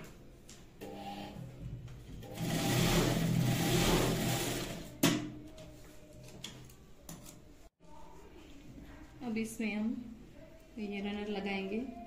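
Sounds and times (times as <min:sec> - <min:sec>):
sewing machine stitching: 0:02.2 - 0:04.9.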